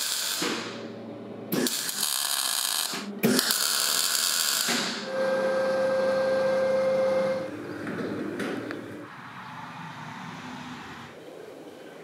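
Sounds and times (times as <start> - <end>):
welding arc hissing: 0.0 - 0.8, 1.5 - 5.1.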